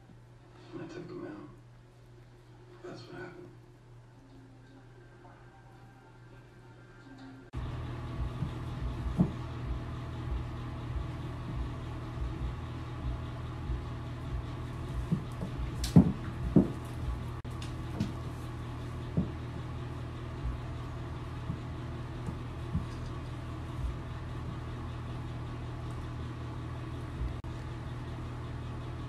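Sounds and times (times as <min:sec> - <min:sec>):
low mechanical hum: 0:00.0 - 0:29.0
soft knocks and thumps: 0:08.3 - 0:09.5, 0:14.9 - 0:18.3, 0:19.0 - 0:19.6.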